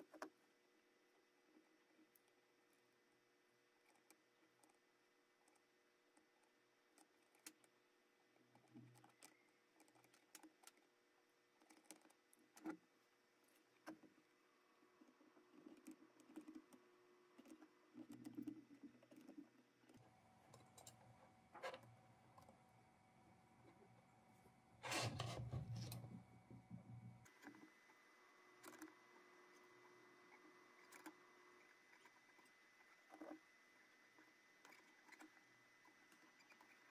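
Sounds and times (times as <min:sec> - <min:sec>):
faint room hum: 0:00.0 - 0:36.9.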